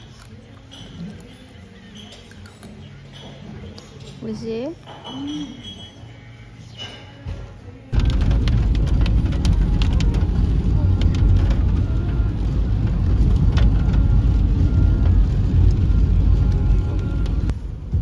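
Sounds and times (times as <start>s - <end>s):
car driving on wet road: 8.0s - 17.5s
raindrops ticking on car: 8.0s - 17.5s.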